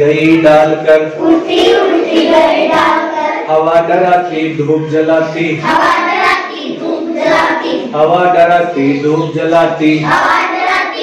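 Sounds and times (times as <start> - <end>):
children chanting a poem: 1.0 - 3.6, 5.3 - 8.1, 9.9 - 11.0.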